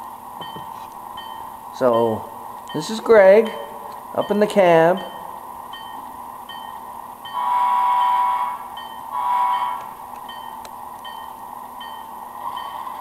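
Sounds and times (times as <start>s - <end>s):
model locomotive bell ringing: 0.0s - 13.0s
locomotive horn blasts: 7.3s - 10.0s.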